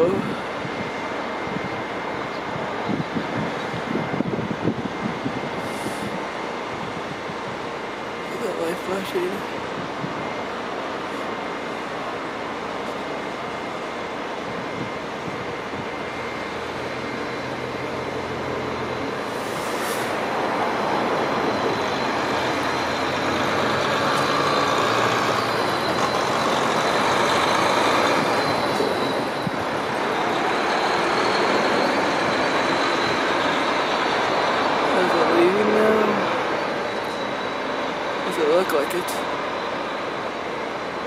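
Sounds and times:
locomotive engine running: 0.0s - 41.0s
brief hiss: 19.3s - 20.2s.

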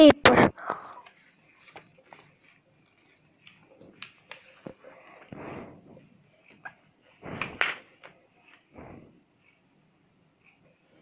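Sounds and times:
paper rustling and crinkling: 1.1s - 5.3s.

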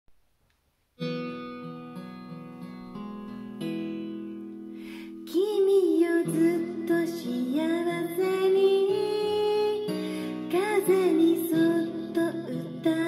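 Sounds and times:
plucked acoustic guitar: 1.0s - 13.0s
person singing: 5.2s - 13.0s.

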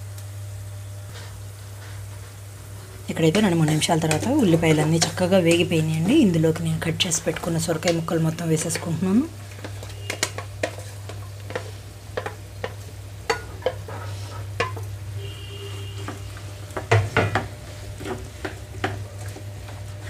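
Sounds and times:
vegetables sizzling in pan: 0.0s - 20.0s
spatula knocking against pan: 9.6s - 13.9s.

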